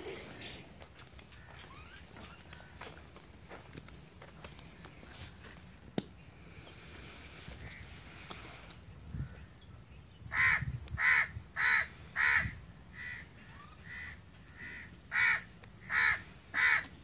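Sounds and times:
crow cawing: 0:10.3 - 0:17.0.

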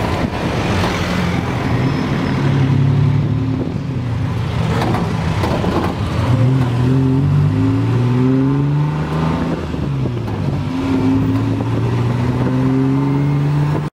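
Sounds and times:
road noise: 0:00.0 - 0:13.9
tuk-tuk engine accelerating: 0:00.0 - 0:13.9.

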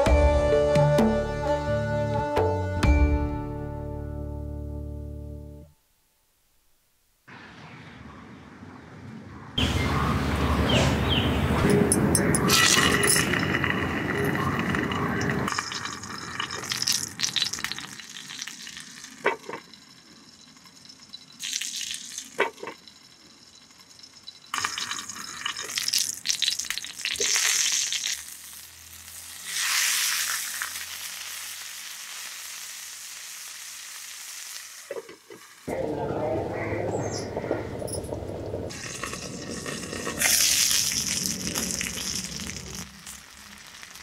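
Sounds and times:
fish sizzling on hot pan: 0:15.5 - 0:35.7, 0:38.7 - 0:44.0.

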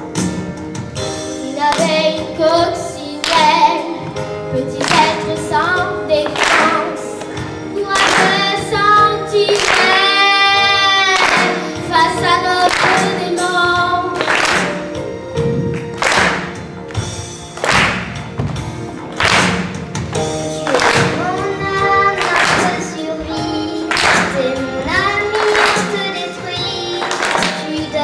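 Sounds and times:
recorded backing track: 0:00.0 - 0:28.0
children singing: 0:07.8 - 0:14.7, 0:20.6 - 0:28.0.

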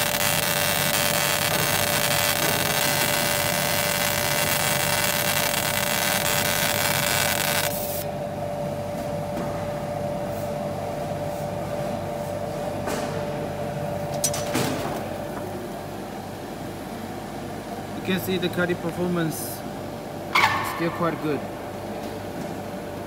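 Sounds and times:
laser cutting high hiss: 0:00.0 - 0:08.0
steady machine hum: 0:00.0 - 0:23.0.

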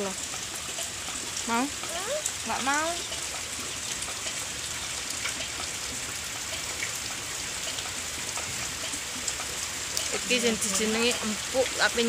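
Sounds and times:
rain falling: 0:00.0 - 0:12.0.

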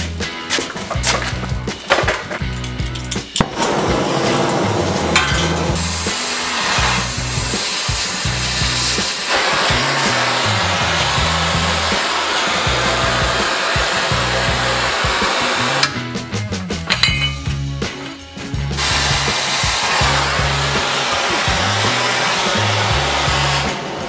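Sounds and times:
background music with bass: 0:00.0 - 0:24.0
torch flame hissing: 0:00.6 - 0:15.9, 0:18.7 - 0:24.0.

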